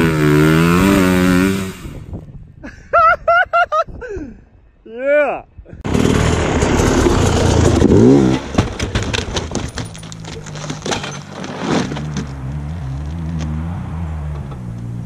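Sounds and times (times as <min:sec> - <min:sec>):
engine revving and idling: 0:00.0 - 0:02.0, 0:05.9 - 0:08.6.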